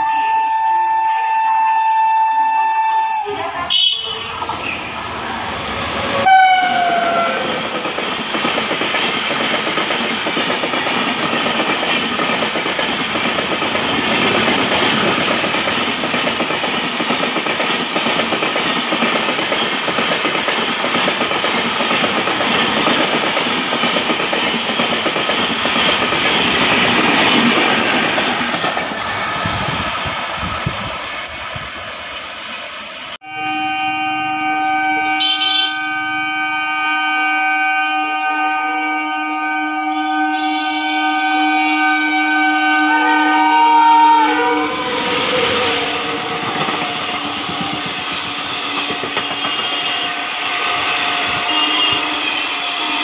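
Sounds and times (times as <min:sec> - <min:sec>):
train horn blast: 0:00.0 - 0:04.8, 0:05.7 - 0:07.8, 0:33.2 - 0:53.0
train wheels rushing on rail: 0:03.2 - 0:33.2, 0:40.3 - 0:53.0.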